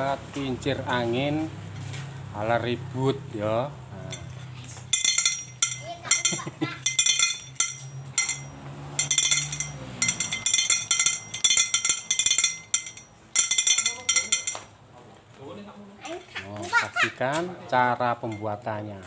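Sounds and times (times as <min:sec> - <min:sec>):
metal hooks striking metal tubes: 0:04.1 - 0:14.7.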